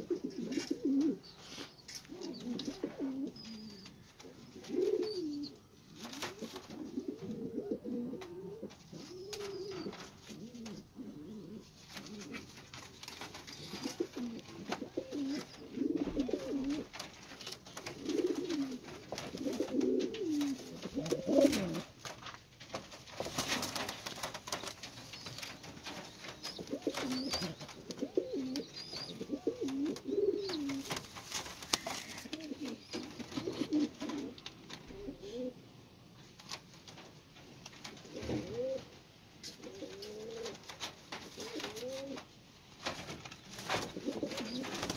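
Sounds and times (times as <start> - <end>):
pigeons cooing: 0.0 - 22.0, 23.3 - 35.6, 37.8 - 42.3, 43.6 - 44.9
brief rustles: 11.8 - 34.9.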